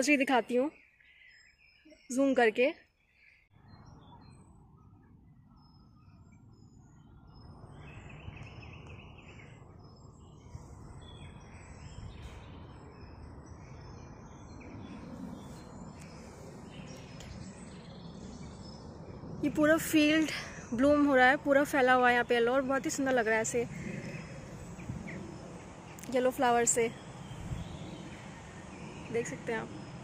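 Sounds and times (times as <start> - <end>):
faint bird chirps: 0.0 - 19.2
wind rumble on microphone: 3.0 - 30.0.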